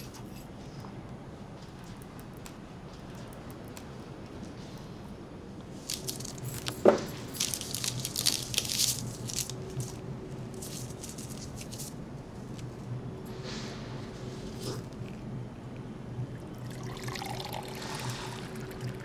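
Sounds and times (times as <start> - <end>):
paper wrapper crinkling and tearing: 5.9 - 6.4, 7.3 - 12.0.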